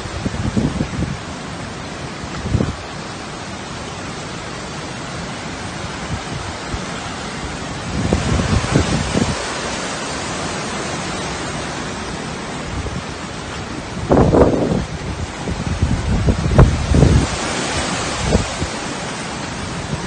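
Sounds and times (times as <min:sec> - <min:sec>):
hurricane wind and rain: 0:00.0 - 0:20.0
wind gusts buffeting microphone: 0:00.0 - 0:20.0.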